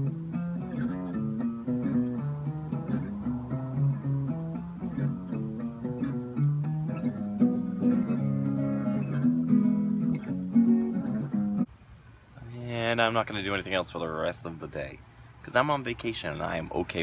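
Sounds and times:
acoustic guitar playing: 0.0s - 11.7s.

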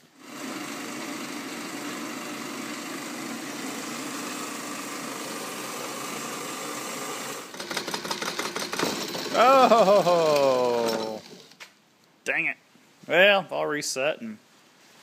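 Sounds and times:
bandsaw cutting steel pipe: 0.0s - 9.5s, 10.6s - 11.4s.

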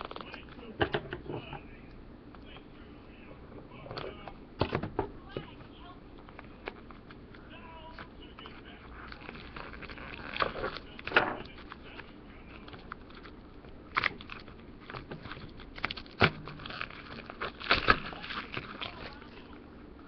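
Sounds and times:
plastic packaging crackling: 0.0s - 0.7s, 5.3s - 19.6s.

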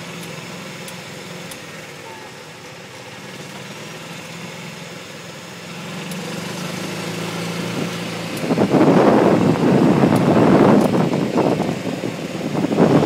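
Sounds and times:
golf cart motor humming: 0.0s - 13.0s
wind buffeting microphone: 7.6s - 13.0s.

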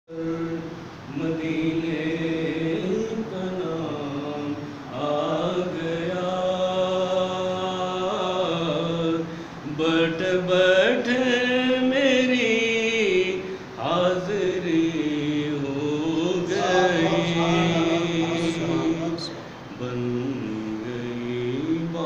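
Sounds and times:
man chanting solo: 0.1s - 22.0s.

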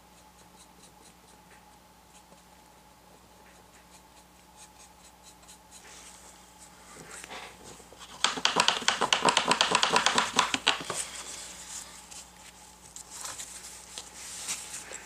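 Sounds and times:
low steady hum: 0.0s - 15.0s
paintbrush scratching: 0.1s - 1.4s, 3.1s - 6.8s.

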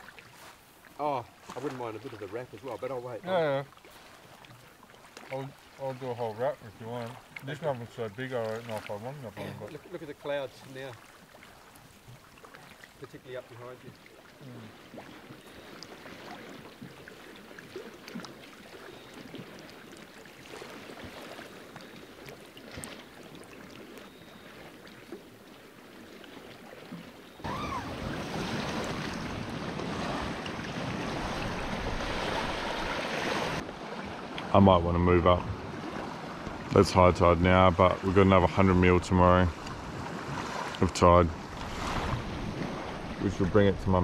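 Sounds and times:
surf: 0.0s - 19.8s, 27.4s - 44.0s
small waves lapping on beach: 0.0s - 44.0s
wind on microphone: 27.4s - 33.6s.

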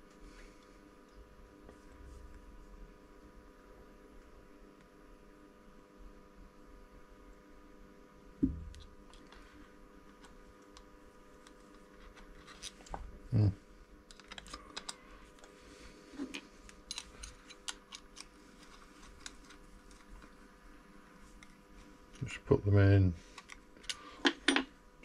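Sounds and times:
dull knock: 8.4s - 8.7s.

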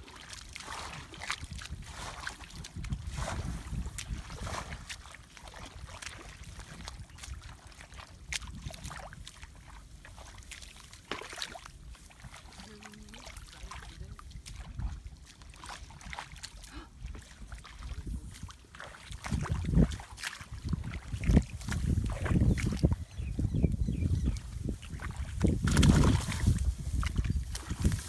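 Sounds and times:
feet splashing in muddy water: 0.0s - 28.0s
wind rumble on microphone: 0.7s - 10.3s, 13.8s - 15.2s, 15.8s - 28.0s.

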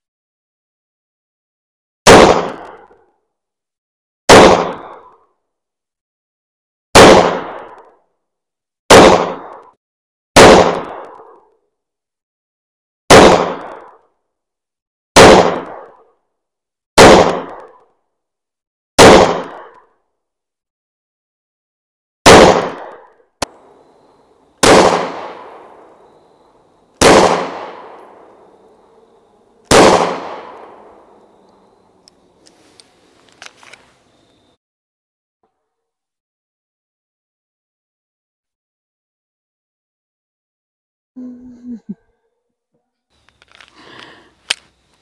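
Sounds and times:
pistol shots with echo: 2.0s - 2.7s, 4.3s - 4.9s, 6.9s - 7.7s, 8.9s - 9.5s, 10.4s - 11.2s, 13.1s - 13.9s, 15.2s - 16.0s, 17.0s - 17.6s, 19.0s - 19.7s, 22.2s - 32.4s.

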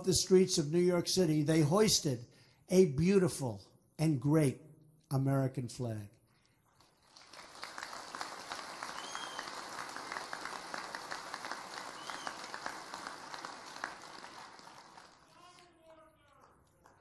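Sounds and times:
audience applauding: 6.7s - 17.0s.

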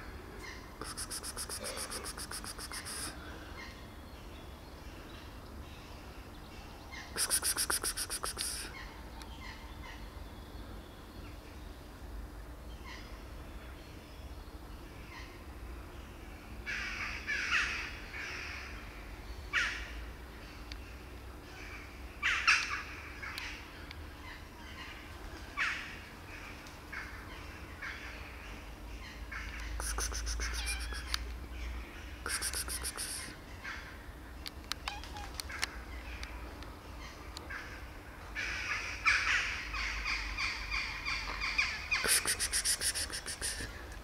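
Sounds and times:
birds harsh calls: 24.2s - 34.0s.

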